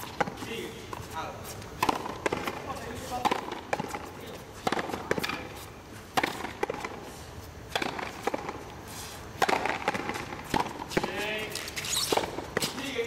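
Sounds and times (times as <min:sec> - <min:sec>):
ball cracking off rackets: 0:01.7 - 0:07.0, 0:07.7 - 0:08.7, 0:09.4 - 0:13.0
ball hitting wall: 0:09.4 - 0:11.2.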